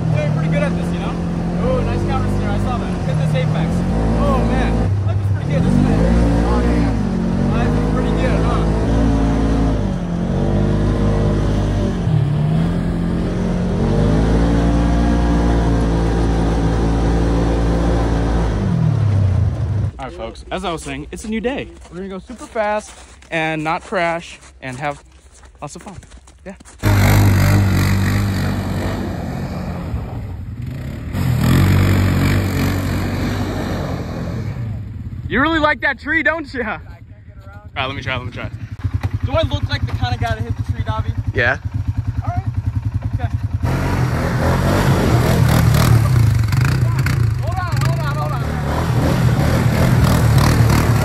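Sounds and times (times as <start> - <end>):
vehicle engine accelerating: 0.0 - 20.1, 26.8 - 35.7, 42.7 - 51.0.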